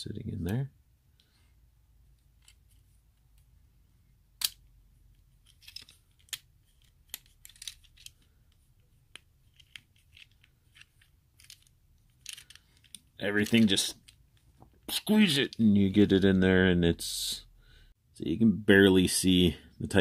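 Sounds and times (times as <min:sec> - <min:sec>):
plastic toy parts clicking: 0:05.4 - 0:14.2.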